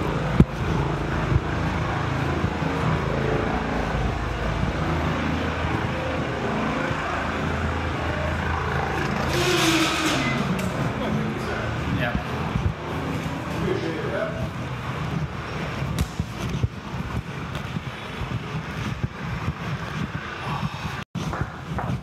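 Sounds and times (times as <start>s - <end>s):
low mechanical hum: 0.0s - 22.0s
door hiss and squeak: 9.2s - 10.6s.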